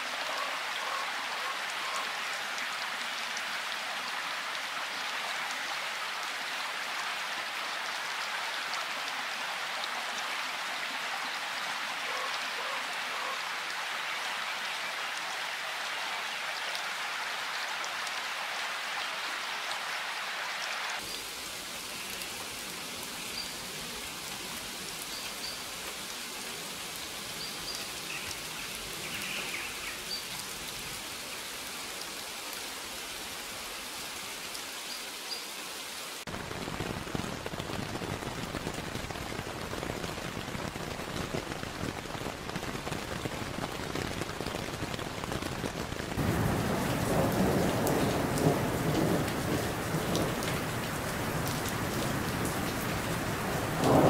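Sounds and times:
rain falling: 0:00.0 - 0:54.0.

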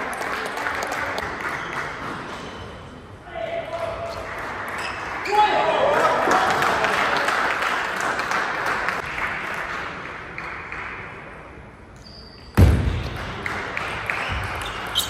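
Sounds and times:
loud thump: 0:12.6 - 0:13.1.

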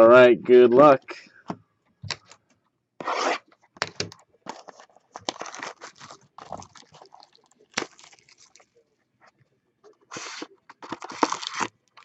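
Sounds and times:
plastic shrink wrap ripping: 0:04.5 - 0:08.6, 0:10.2 - 0:12.0
plastic crinkling tears: 0:04.5 - 0:08.7, 0:10.2 - 0:12.0.

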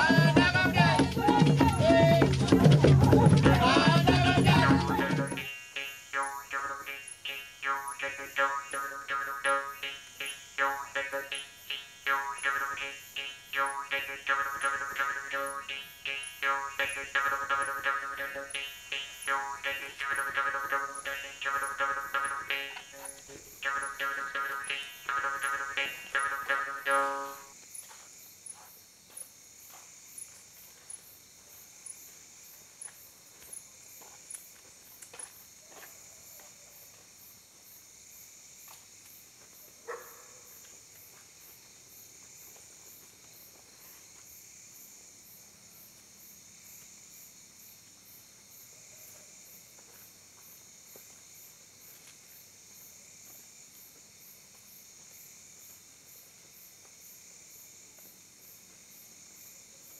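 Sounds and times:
high insect pulse: 0:00.0 - 0:28.6
crickets chirring: 0:00.0 - 0:59.9.

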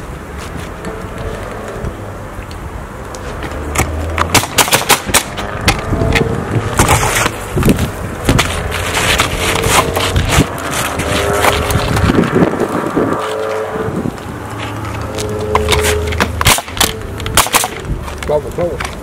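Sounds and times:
nail gun shots: 0:04.3 - 0:05.4, 0:16.4 - 0:17.8.

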